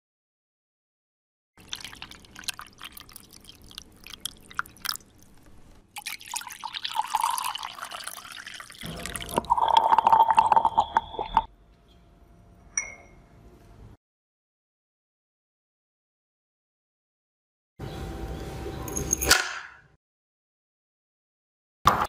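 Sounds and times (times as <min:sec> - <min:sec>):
crackling drips and bubbles: 0:01.6 - 0:11.5
syringe slurping and gurgling: 0:01.6 - 0:11.5
steady whistling tone: 0:09.6 - 0:11.5
glass clink: 0:12.7 - 0:13.3.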